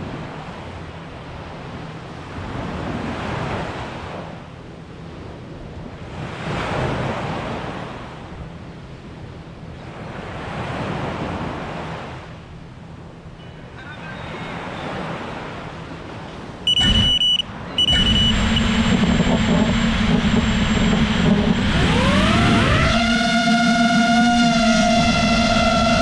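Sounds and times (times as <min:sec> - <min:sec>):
small waves breaking on shore: 0:00.0 - 0:18.3.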